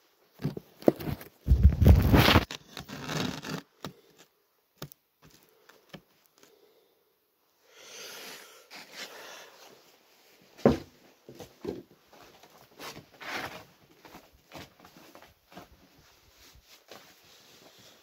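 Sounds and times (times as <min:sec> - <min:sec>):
padded suit rustling: 0:12.1 - 0:18.0.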